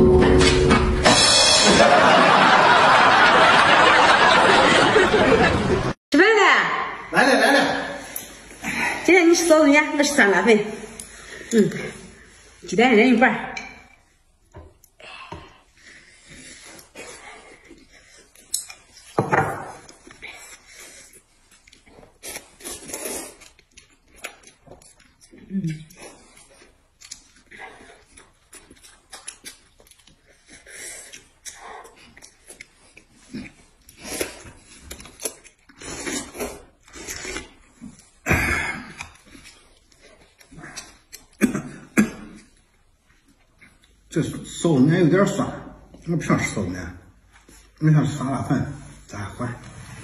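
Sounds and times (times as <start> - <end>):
noodles slurped and chewed: 14.0 - 19.2, 19.8 - 41.4
noodles being slurped: 19.9 - 24.6.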